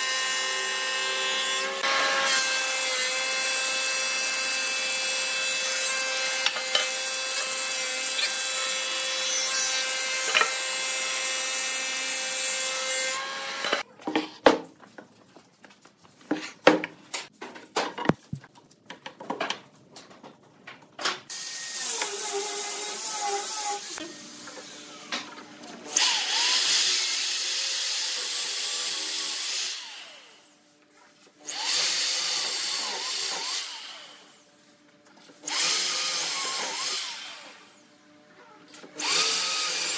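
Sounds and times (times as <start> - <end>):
electric drill boring wood: 0.0 - 13.8, 21.3 - 25.2, 25.9 - 30.5, 31.4 - 34.4, 35.4 - 37.8, 38.9 - 39.9
thickness planer cutting wood: 0.0 - 13.8.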